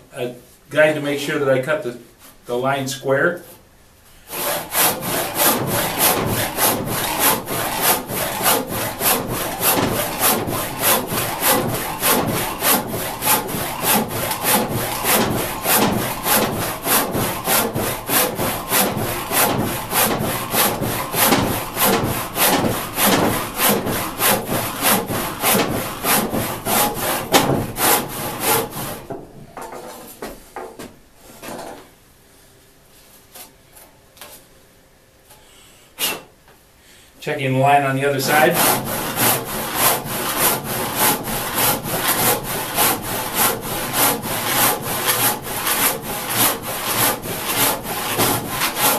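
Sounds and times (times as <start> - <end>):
handsaw cutting wood: 4.3 - 29.1, 38.0 - 48.9.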